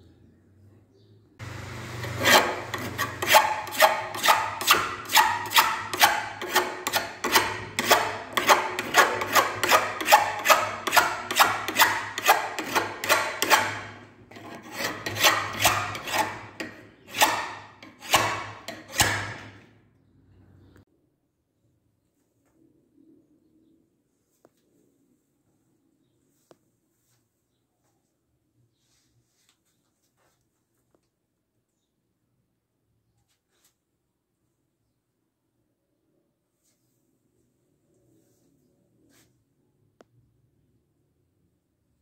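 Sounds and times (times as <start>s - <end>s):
knife blade scraping: 1.9s - 19.6s.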